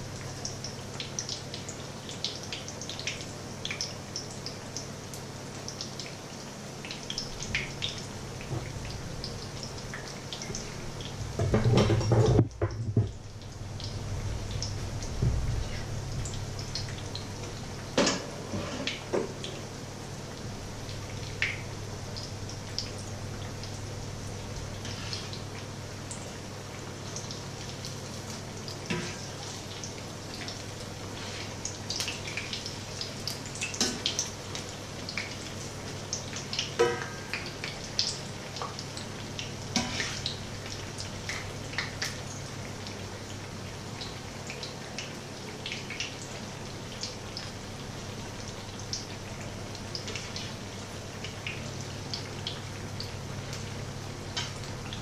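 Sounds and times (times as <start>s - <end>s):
batter sizzling in oil: 13.2s - 55.0s.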